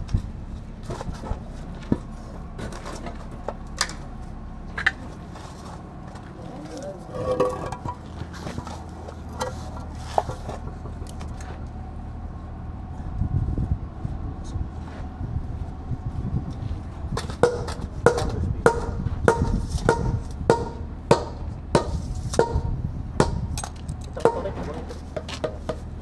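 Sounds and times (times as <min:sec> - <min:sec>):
low steady rumble: 0:00.0 - 0:26.0.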